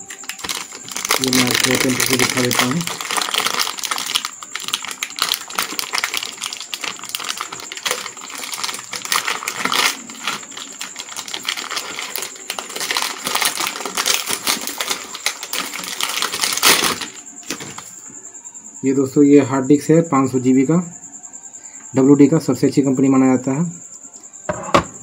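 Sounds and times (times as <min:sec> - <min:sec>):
plastic bag crinkling: 0:00.0 - 0:17.9.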